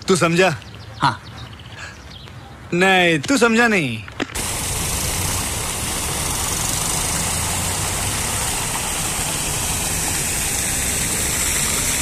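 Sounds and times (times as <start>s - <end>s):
vehicle engine hum: 4.3s - 12.0s
fountain water splashing: 4.4s - 12.0s.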